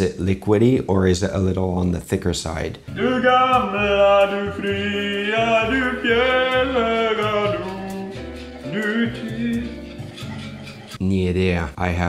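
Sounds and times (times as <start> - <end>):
man singing unaccompanied: 2.9 - 10.2.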